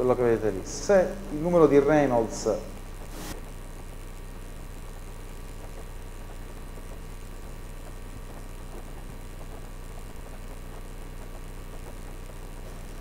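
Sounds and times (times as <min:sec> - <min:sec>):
faint hiss: 0:00.0 - 0:13.0
low electrical hum: 0:00.0 - 0:13.0
brief burst of noise: 0:03.0 - 0:03.4.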